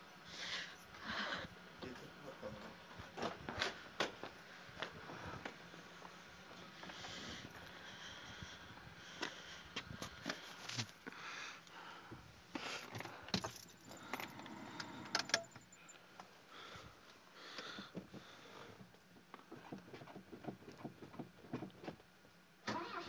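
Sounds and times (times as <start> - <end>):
keys jangling: 13.0 - 15.6
car engine starting: 22.6 - 23.0.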